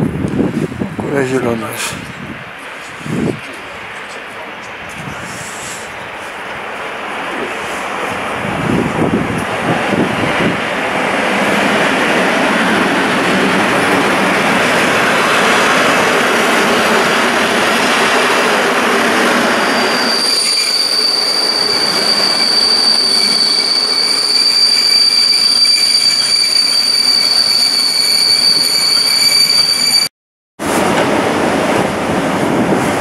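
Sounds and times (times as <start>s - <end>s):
train rumbling past: 0.0s - 33.0s
high-pitched brake squeal: 19.6s - 30.1s.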